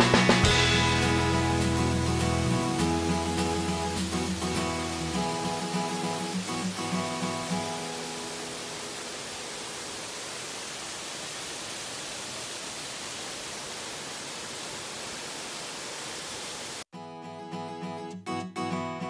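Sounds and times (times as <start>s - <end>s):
guitar music: 0.0s - 9.0s, 17.0s - 19.0s
waterfall rushing: 0.0s - 16.9s.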